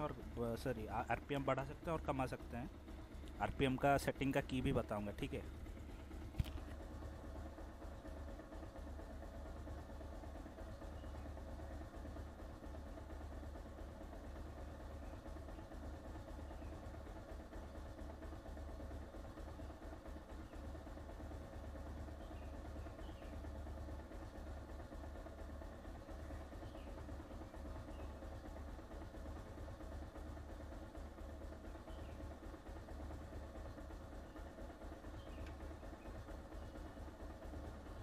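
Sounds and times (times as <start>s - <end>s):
motorcycle engine idling: 0.0s - 38.0s.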